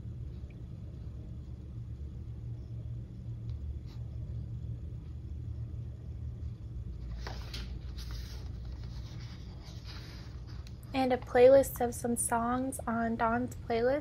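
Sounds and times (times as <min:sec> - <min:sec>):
steady low rumble: 0:00.0 - 0:14.0
paper page turning: 0:07.0 - 0:10.8.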